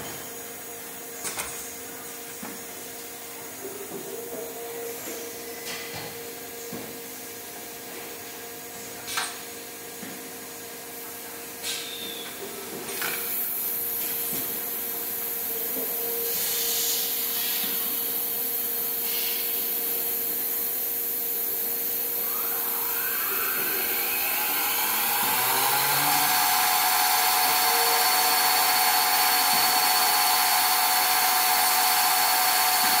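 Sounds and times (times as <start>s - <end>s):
coil winder whine: 20.0s - 33.0s.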